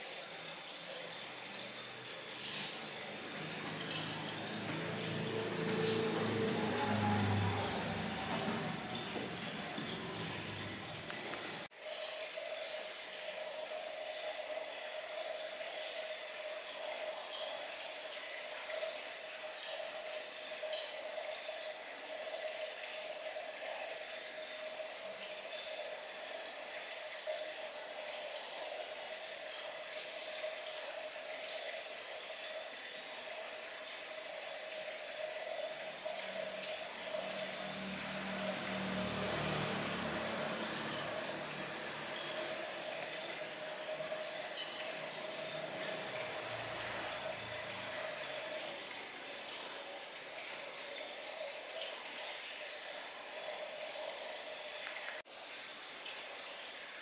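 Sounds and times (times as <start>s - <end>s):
tap running into basin: 1.2s - 11.7s, 33.4s - 49.8s.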